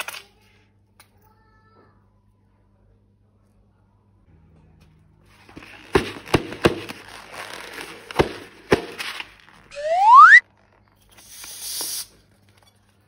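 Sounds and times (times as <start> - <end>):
slide-whistle sound effect: 9.7 - 10.4.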